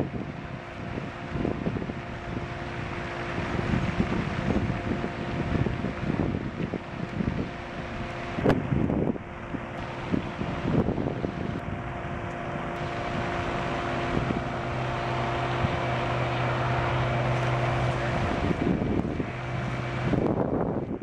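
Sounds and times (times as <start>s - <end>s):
engine drone: 0.0s - 21.0s
wind on microphone: 0.0s - 21.0s.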